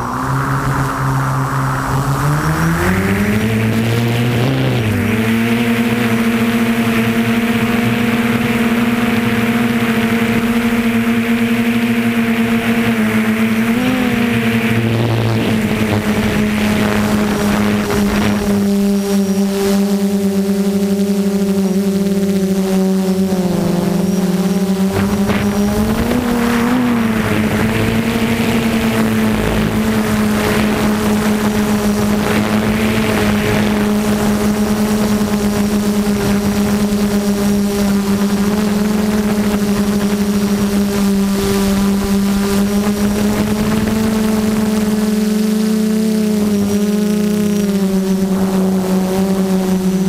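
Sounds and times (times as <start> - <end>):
rushing noise: 0.0 - 5.2, 24.8 - 35.5
drone propellers humming: 0.0 - 50.0.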